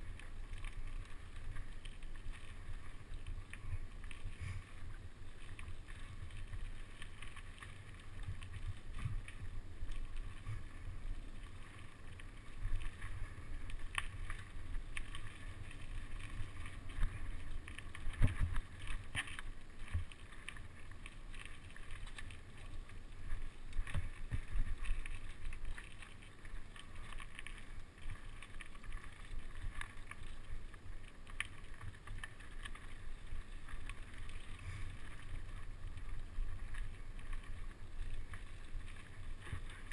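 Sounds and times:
wind and tyre rumble: 0.0 - 39.9.

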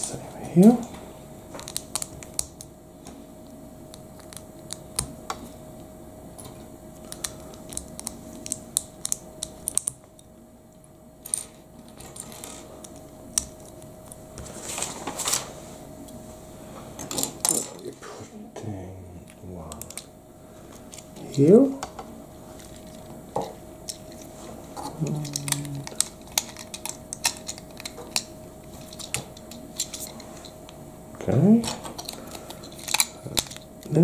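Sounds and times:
rustling scrapes: 14.4 - 15.8.

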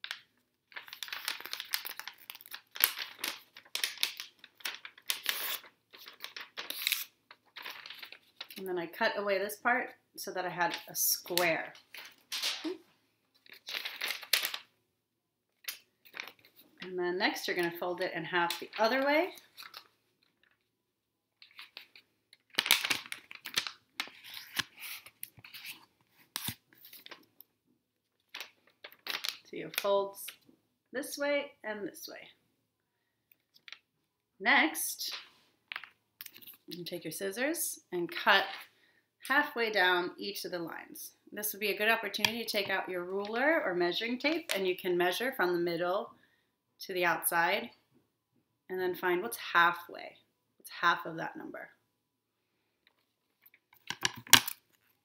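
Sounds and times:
magazine paper crinkling: 0.0 - 8.6, 10.7 - 14.7, 15.6 - 16.8, 18.5 - 20.7, 21.4 - 27.4, 28.2 - 29.9, 52.9 - 55.0.

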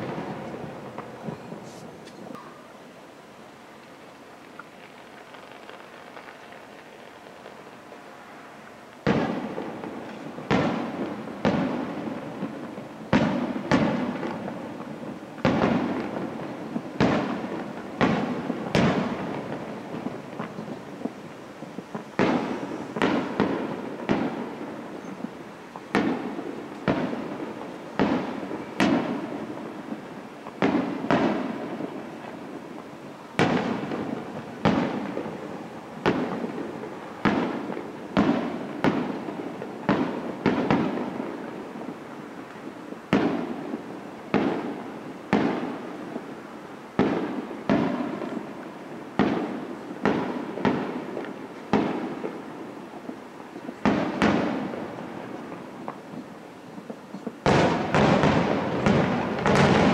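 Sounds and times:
firework shells bursting: 53.8 - 59.9.

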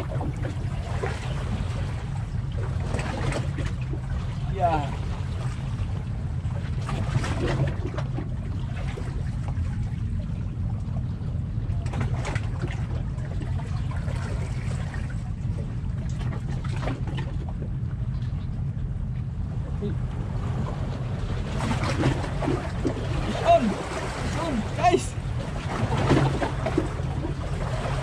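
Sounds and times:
wind rumble on microphone: 0.0 - 28.0
waves lapping against rocks: 20.0 - 28.0.

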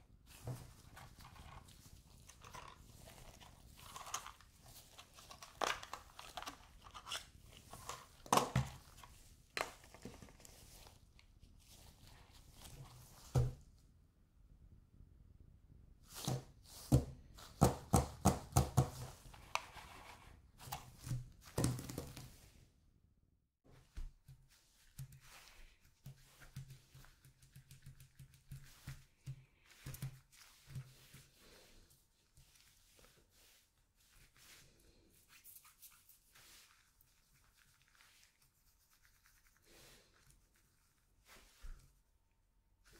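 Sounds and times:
paper cards rustling on table: 0.3 - 11.0
gloved hands knocking on tabletop: 16.9 - 19.1.

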